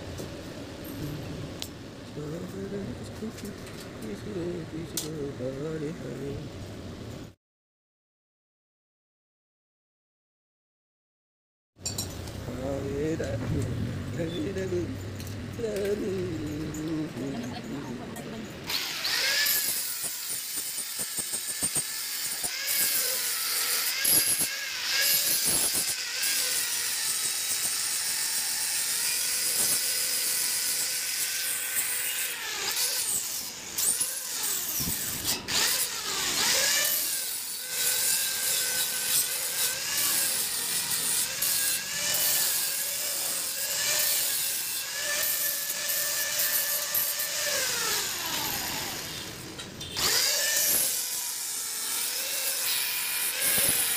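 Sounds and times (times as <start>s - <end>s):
angle grinder grinding metal: 14.4s - 53.9s.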